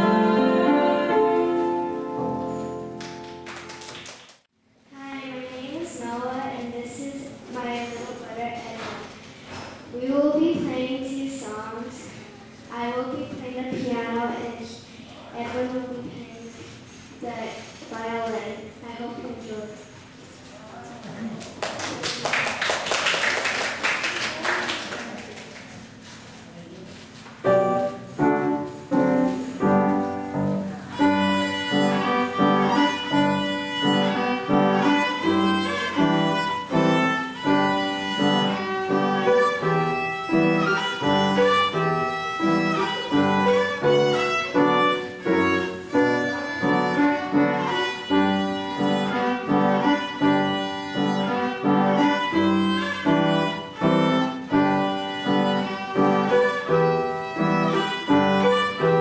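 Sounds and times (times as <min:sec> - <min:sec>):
violin melody: 0:00.0 - 0:03.3, 0:27.5 - 0:59.0
piano chords: 0:00.0 - 0:04.0, 0:27.4 - 0:59.0.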